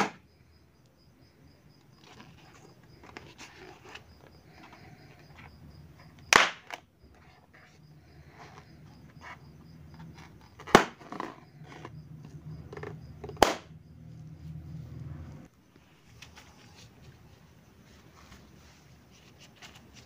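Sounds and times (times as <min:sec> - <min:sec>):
balloons popping: 0:06.3 - 0:06.8, 0:10.6 - 0:11.4, 0:13.2 - 0:13.8.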